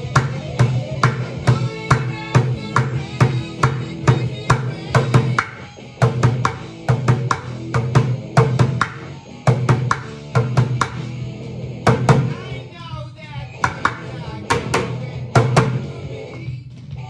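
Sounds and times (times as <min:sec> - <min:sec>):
drumsticks on plastic bucket: 0:13.6 - 0:15.8.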